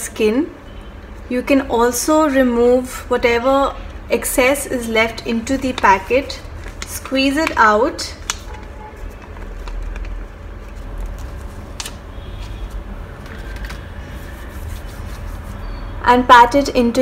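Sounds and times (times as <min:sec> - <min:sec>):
foil sachet crinkling: 0:05.2 - 0:15.7.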